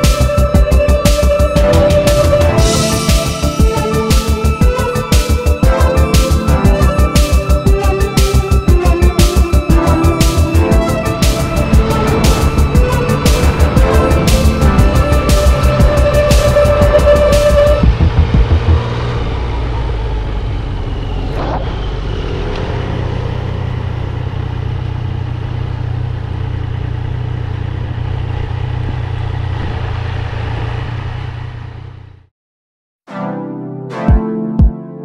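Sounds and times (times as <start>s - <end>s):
background music: 0.0s - 19.3s, 33.1s - 35.0s
motorcycle engine rumble: 0.0s - 32.3s
road and wind noise: 7.2s - 32.3s.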